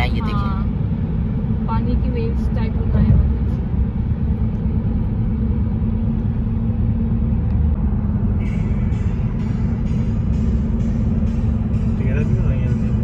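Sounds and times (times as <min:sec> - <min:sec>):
car interior road rumble: 0:00.0 - 0:13.0.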